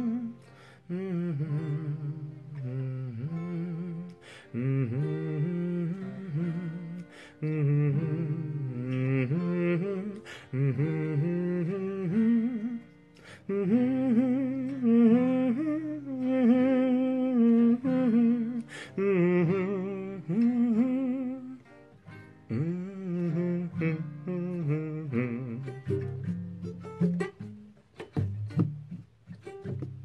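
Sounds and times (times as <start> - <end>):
acoustic guitar chords: 0.0 - 30.0
man humming with vibrato: 22.5 - 26.4.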